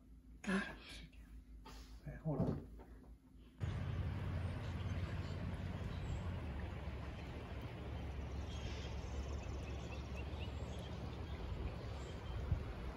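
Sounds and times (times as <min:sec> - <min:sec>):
low wind rumble on microphone: 0:03.6 - 0:12.9.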